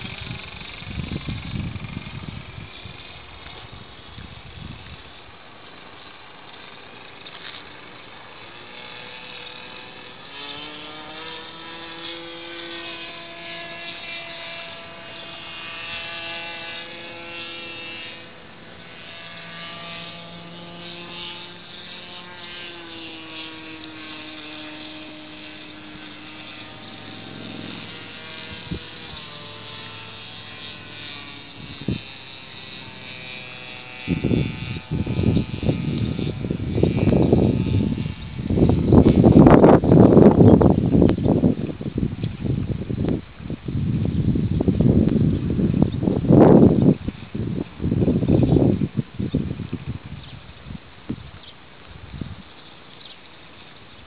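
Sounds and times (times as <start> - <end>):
propeller aircraft engine droning: 0.0 - 54.0
rough rumble on microphone: 0.0 - 54.0.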